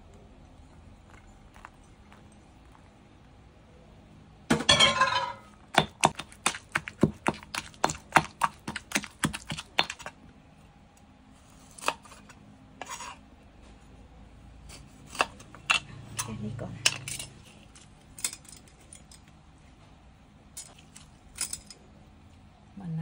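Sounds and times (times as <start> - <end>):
pestle pounding in stone mortar: 5.6 - 10.2.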